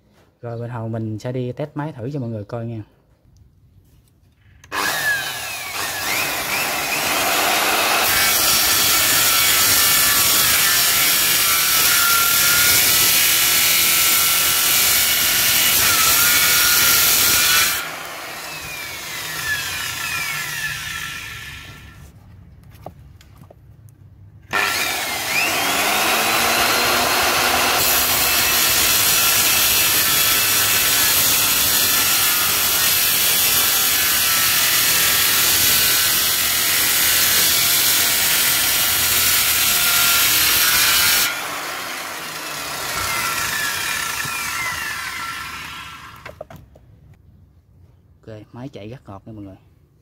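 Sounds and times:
saw cutting through branch: 4.6 - 22.0, 24.5 - 46.4
circular saw whining: 4.6 - 22.1, 24.5 - 46.4.

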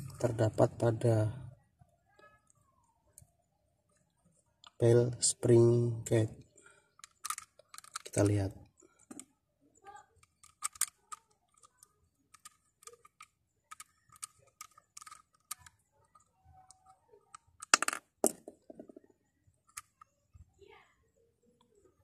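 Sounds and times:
clatter of small hard parts: 6.6 - 9.3, 10.2 - 20.1.

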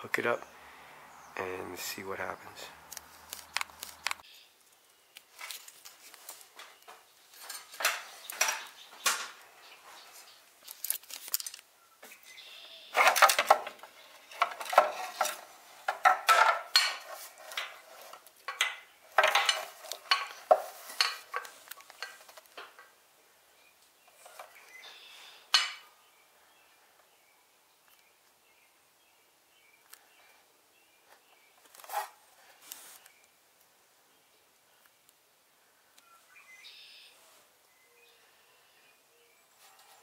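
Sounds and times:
clicks knocks and rattles: 13.0 - 22.9.

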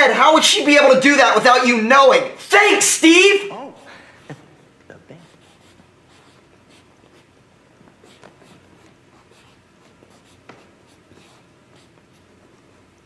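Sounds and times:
pencil scratching on paper: 5.2 - 7.3, 7.9 - 12.6.

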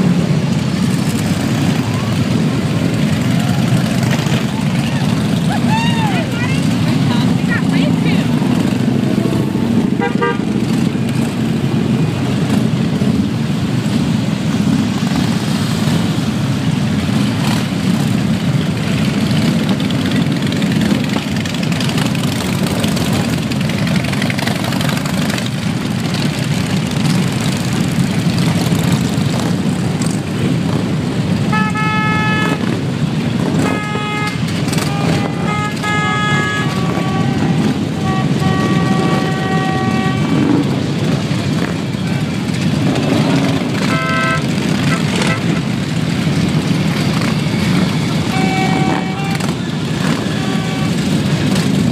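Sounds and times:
motorcycles rumbling past: 0.0 - 51.9
horns honking: 3.0 - 13.0, 31.3 - 46.0, 46.9 - 51.9.

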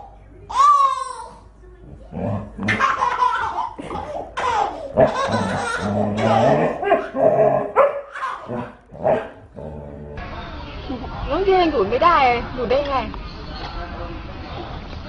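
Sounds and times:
baby laughing: 0.5 - 1.4, 2.6 - 7.2, 8.1 - 8.7
large dog barking: 6.4 - 9.4.

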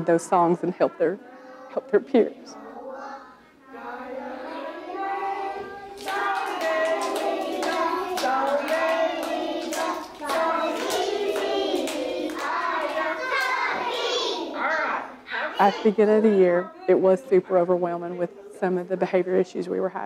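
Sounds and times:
adult and children singing: 0.0 - 15.7
people clapping along: 5.8 - 14.3.

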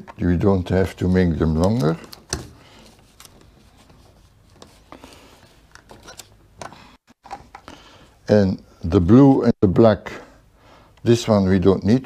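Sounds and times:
handling wires and plastic enclosure: 0.0 - 7.8.

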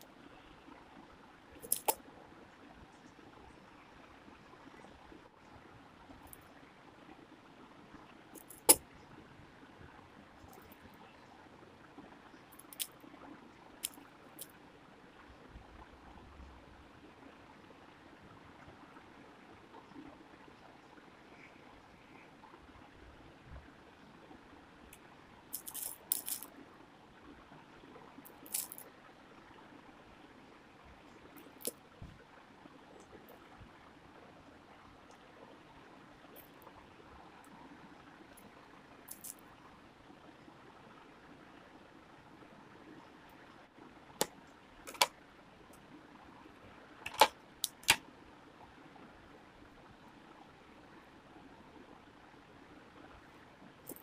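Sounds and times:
plastic beads clicking: 1.6 - 2.0, 8.4 - 8.8, 12.6 - 12.9, 25.5 - 26.5, 28.2 - 28.8, 31.4 - 31.8, 39.1 - 39.4, 44.9 - 45.1, 47.1 - 48.0.

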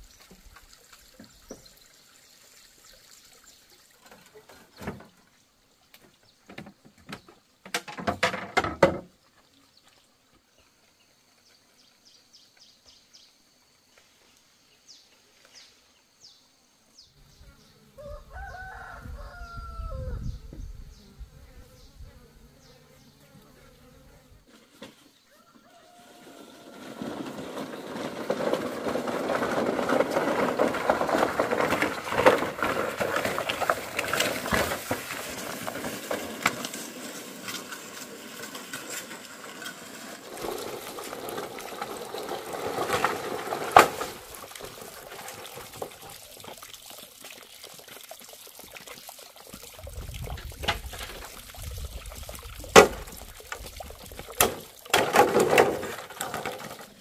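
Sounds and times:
poles scraping over ground: 23.9 - 57.0.

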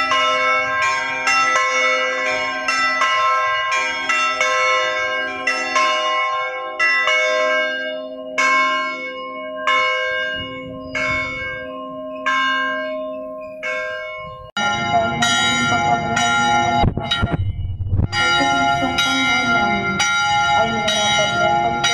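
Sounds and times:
church bells ringing: 0.0 - 21.9.

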